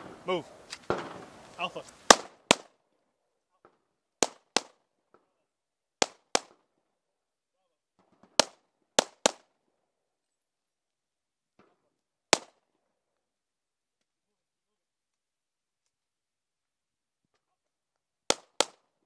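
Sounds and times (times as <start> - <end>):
handgun shots: 2.1 - 2.7.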